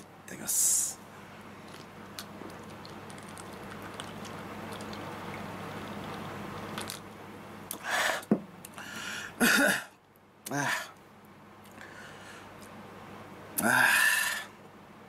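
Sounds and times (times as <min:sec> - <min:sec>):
low steady hum: 0:00.0 - 0:15.0
man gulping a drink: 0:01.6 - 0:07.1.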